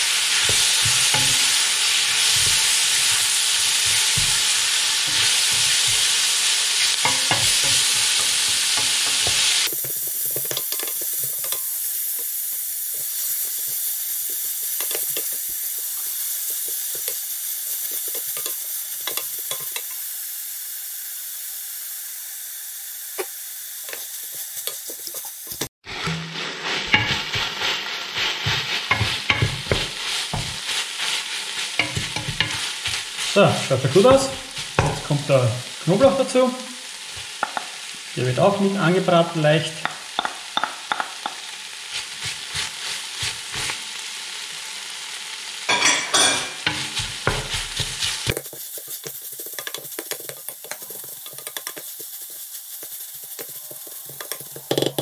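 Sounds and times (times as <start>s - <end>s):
onions sizzling in hot oil: 0.0s - 55.0s
spatula scraping and knocking pot: 0.3s - 11.8s, 13.0s - 20.0s, 23.9s - 35.2s, 45.7s - 55.0s.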